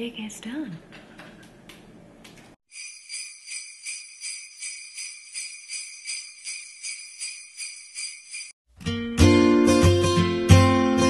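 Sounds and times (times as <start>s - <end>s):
sleigh bells shaken: 2.7s - 8.6s.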